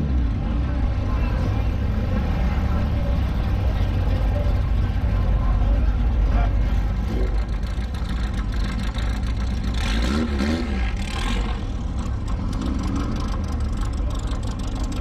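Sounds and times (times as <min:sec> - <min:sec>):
car engine deep rumble: 0:00.0 - 0:15.0.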